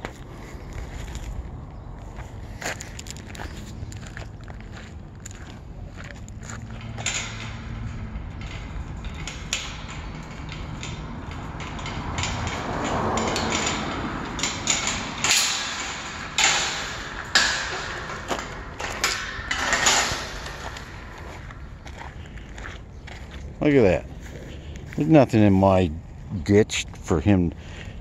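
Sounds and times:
footsteps crunching on gravel: 0.0s - 8.2s, 20.2s - 26.4s.

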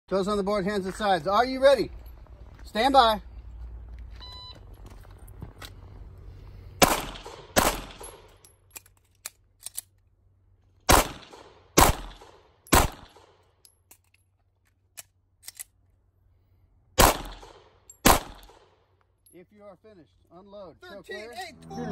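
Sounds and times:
pistol shots with echo: 6.8s - 8.2s, 10.9s - 13.2s, 17.0s - 18.6s.

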